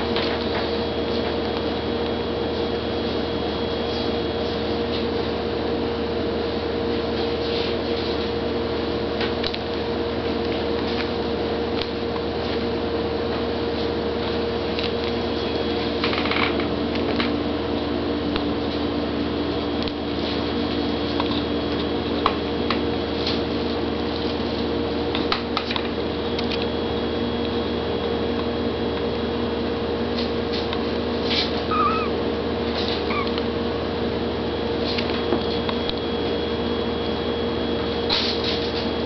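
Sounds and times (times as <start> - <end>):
steady hum: 26.0 - 38.8
kitten mewing: 31.6 - 33.5.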